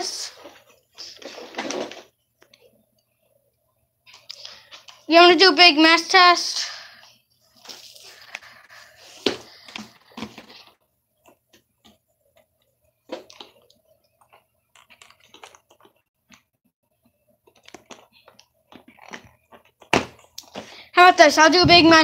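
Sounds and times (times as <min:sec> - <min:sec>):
handling clicks taps and rustles: 0:17.4 - 0:20.6.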